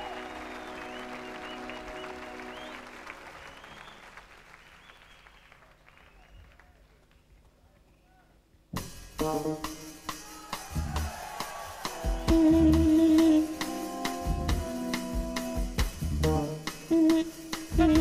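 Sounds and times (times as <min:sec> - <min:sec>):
live jazz band playing: 0:08.8 - 0:18.0.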